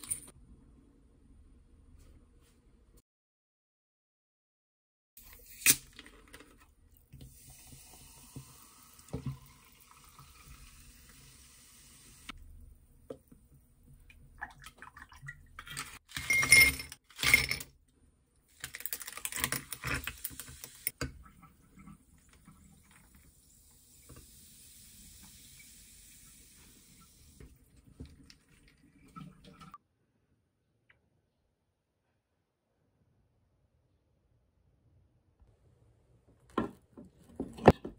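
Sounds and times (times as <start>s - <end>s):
drink pouring and fizzing: 5.2s - 12.6s, 18.6s - 29.7s.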